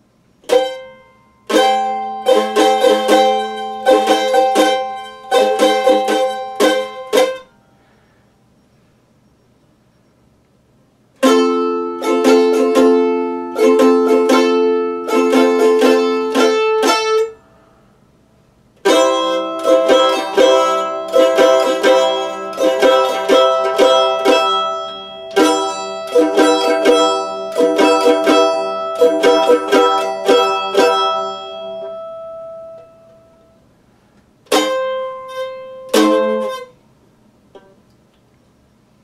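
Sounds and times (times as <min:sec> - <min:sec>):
mandolin strumming chords: 0:00.0 - 0:07.6, 0:11.2 - 0:17.4, 0:18.8 - 0:33.7, 0:34.4 - 0:36.8.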